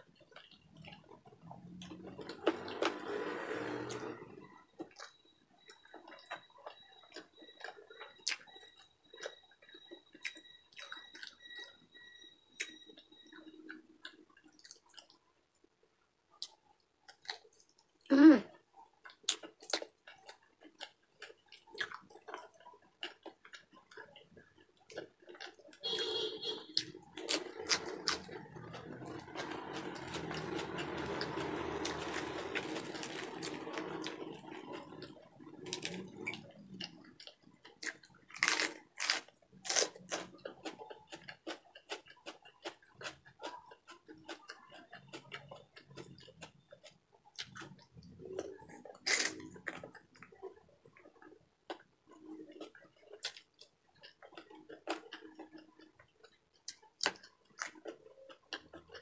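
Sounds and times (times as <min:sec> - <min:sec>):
wet chewing: 0:16.4 - 0:59.0.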